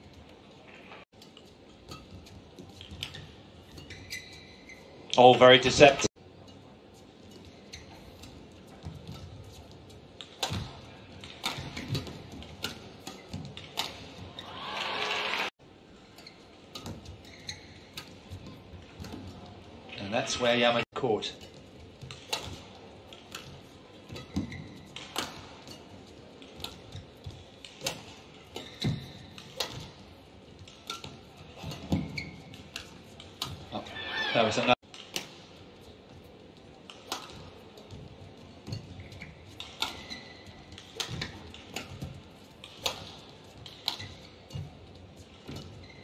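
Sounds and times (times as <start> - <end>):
shoe squeaks on court: 3.0 - 5.0, 7.5 - 8.2, 17.2 - 18.0, 31.6 - 32.9, 39.1 - 41.1, 45.6 - 46.0
racket striking shuttlecock: 10.2 - 14.2, 22.1 - 27.0, 27.6 - 30.0, 36.9 - 37.4, 39.6 - 44.7.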